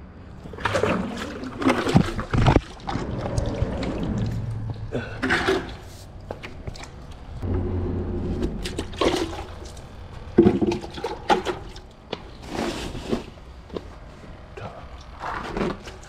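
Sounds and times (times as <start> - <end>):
water splashing in a bucket: 0.4 - 4.7, 8.6 - 11.9.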